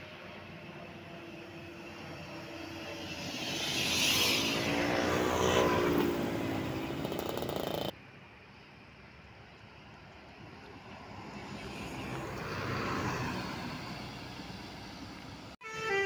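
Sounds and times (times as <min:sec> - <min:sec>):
road noise: 0:00.0 - 0:16.0
bus driving past: 0:09.7 - 0:16.0.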